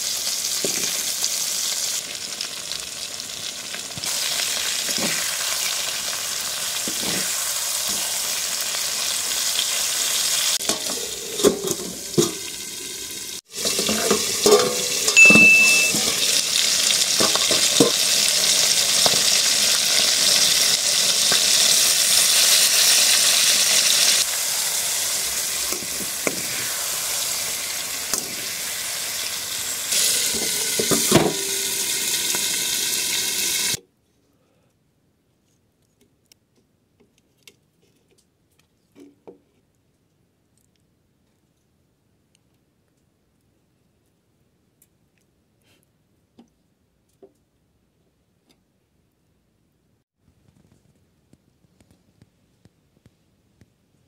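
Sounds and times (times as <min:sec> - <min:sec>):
fish curry sizzling in pan: 0:00.0 - 0:15.2, 0:15.8 - 0:33.8
metal spatula scraping pan: 0:13.6 - 0:16.2.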